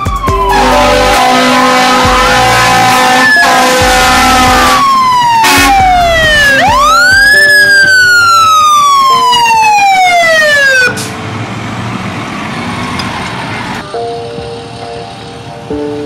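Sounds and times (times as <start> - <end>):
emergency vehicle siren wailing: 0.0 - 14.1.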